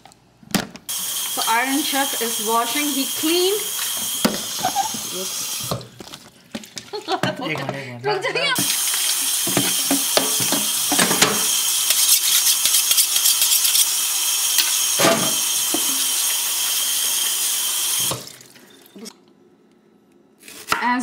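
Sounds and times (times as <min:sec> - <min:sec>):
tap water running: 0:00.9 - 0:07.5, 0:08.4 - 0:19.1
colander knocking: 0:09.4 - 0:11.5, 0:15.0 - 0:16.0.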